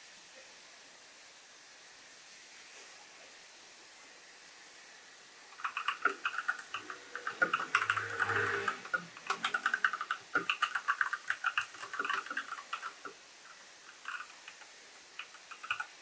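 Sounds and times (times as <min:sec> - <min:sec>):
mechanical keyboard key clacks: 0:08.9 - 0:13.1.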